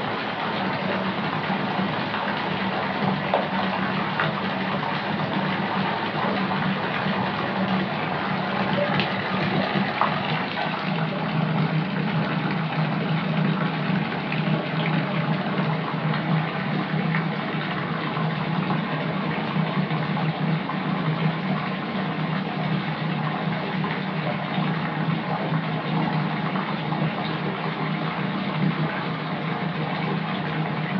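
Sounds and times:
water pouring from a tap into bathtub: 0.0s - 30.9s.

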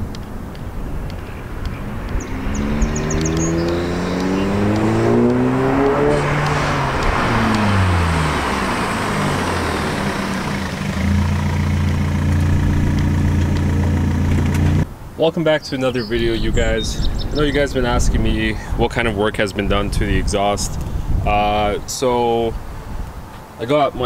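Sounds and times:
car exhaust note: 0.8s - 14.9s.

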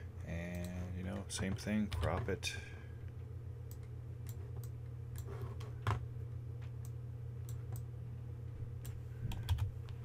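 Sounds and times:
steady low hum: 0.0s - 10.0s
computer mouse clicks: 3.7s - 5.4s.

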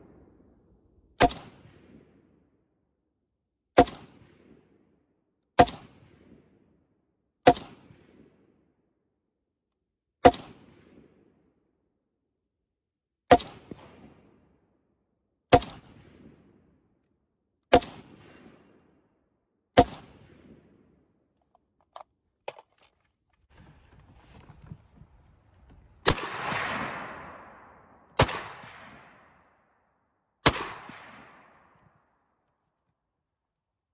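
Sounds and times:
rifle shots with echo: 0.0s - 2.5s, 5.6s - 6.6s, 7.4s - 8.4s, 10.2s - 11.3s, 13.3s - 14.3s, 15.5s - 16.6s, 17.7s - 18.9s, 19.8s - 21.1s, 26.0s - 29.5s, 30.4s - 31.8s.

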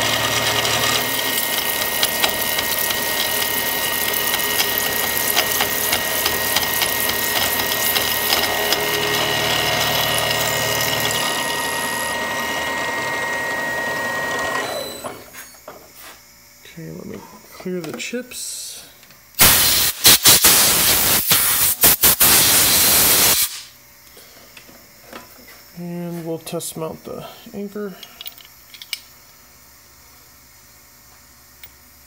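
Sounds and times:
metal cutting noise: 0.0s - 15.0s
mill spindle whine: 0.0s - 18.0s.

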